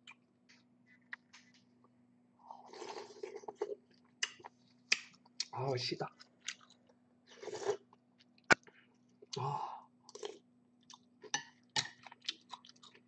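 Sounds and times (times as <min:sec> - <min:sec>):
chewing: 0:11.8 - 0:13.0.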